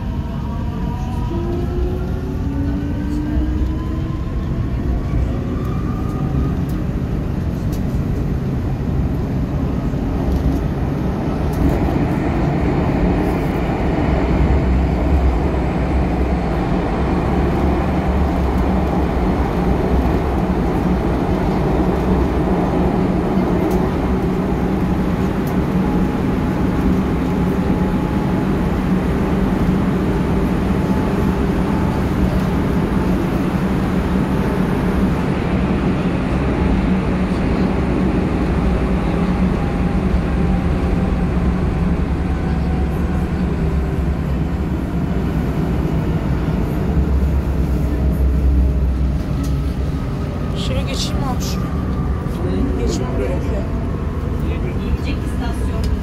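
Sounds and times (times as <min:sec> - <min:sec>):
train rumble and rail noise: 0:00.0 - 0:56.0.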